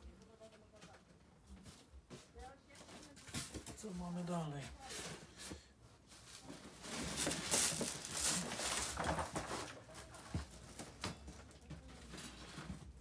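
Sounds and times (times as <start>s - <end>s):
packaging rustling and crinkling: 2.7s - 13.0s.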